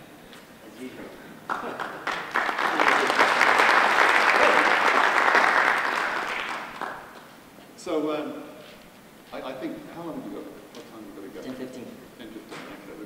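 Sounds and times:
audience applauding: 1.5 - 7.3.

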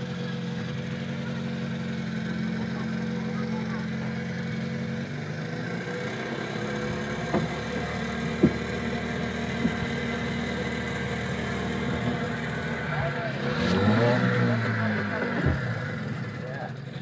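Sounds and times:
outboard motor running: 0.0 - 17.0
short sharp knocks: 8.3 - 8.9, 9.6 - 10.1.

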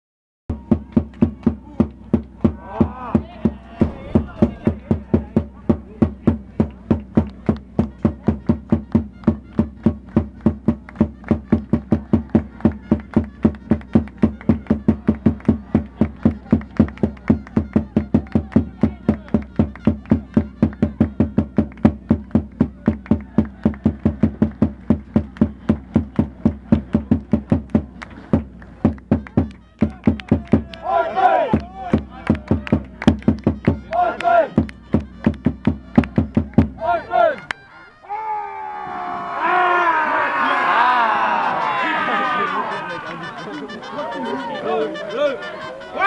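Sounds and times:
drum beaten in fast rhythm: 0.5 - 30.8, 31.5 - 37.0.

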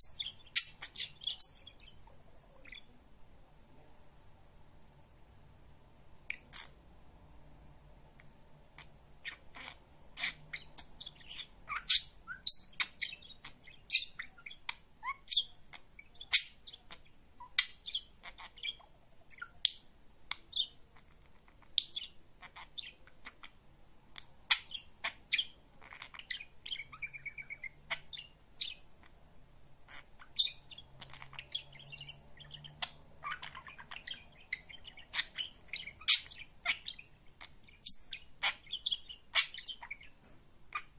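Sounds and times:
budgerigar chirping: 0.0 - 2.9, 8.7 - 23.6, 24.2 - 29.2, 29.8 - 40.9.

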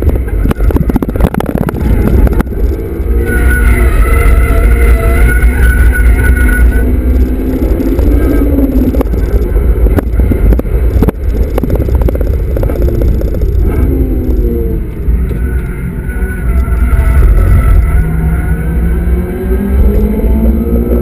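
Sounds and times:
car engine revving: 0.0 - 21.0
low road rumble: 0.0 - 21.0
knocks and rattles in car: 8.7 - 14.4.

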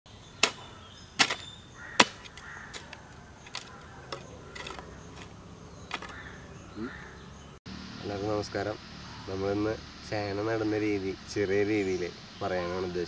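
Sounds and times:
hoe chopping into soil: 0.4 - 6.2.

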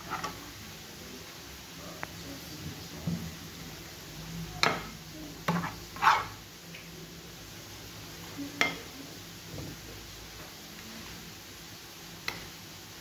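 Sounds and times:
metal spoon scraping a pan: 0.0 - 0.4, 4.6 - 6.4
faint sizzle: 0.0 - 13.0.

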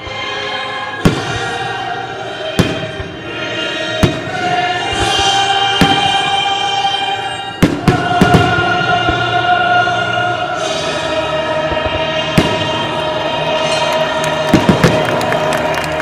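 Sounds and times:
firework bangs: 2.5 - 3.3, 4.0 - 6.4, 7.6 - 9.3, 11.6 - 16.0.

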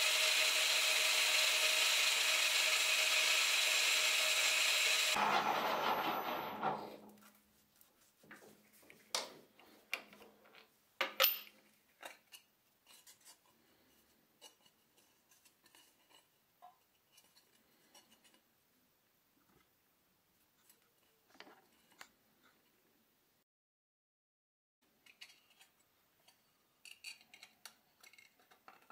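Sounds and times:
metal lathe running down: 0.0 - 6.9.

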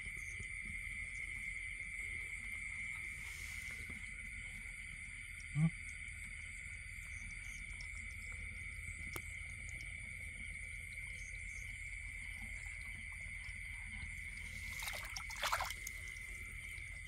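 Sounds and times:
night insects trilling: 0.0 - 17.0
water splashing: 14.3 - 17.0.

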